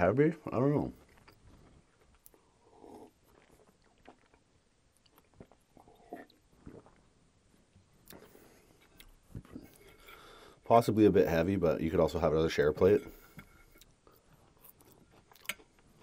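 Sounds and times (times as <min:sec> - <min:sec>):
person swallowing a drink: 0:02.2 - 0:07.2.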